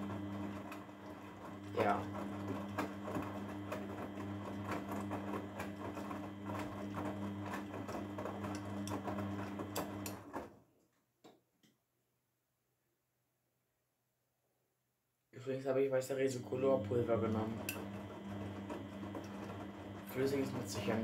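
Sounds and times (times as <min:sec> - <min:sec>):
washing machine motor humming: 0:00.0 - 0:10.6, 0:16.0 - 0:21.0.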